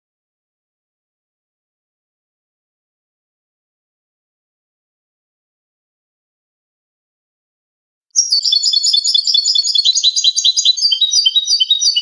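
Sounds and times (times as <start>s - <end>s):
goldfinch singing: 8.2s - 12.0s.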